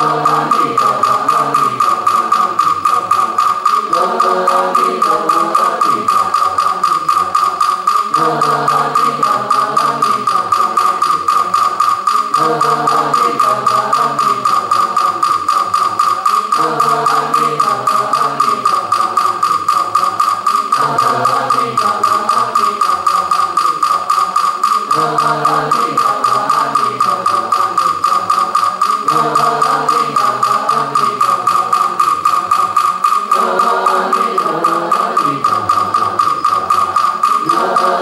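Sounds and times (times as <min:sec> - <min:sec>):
group chanting in unison: 0:00.0 - 0:02.0, 0:03.7 - 0:07.0, 0:08.0 - 0:11.0, 0:12.2 - 0:14.6, 0:16.4 - 0:18.7, 0:20.6 - 0:22.9, 0:24.7 - 0:27.4, 0:29.0 - 0:31.4, 0:33.2 - 0:35.9, 0:37.3 - 0:38.0.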